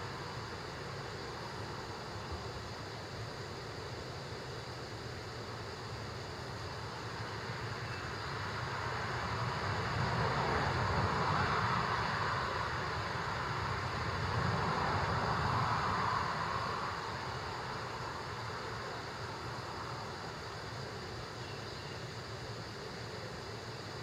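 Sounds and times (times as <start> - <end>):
highway traffic passing: 7.3 - 21.3.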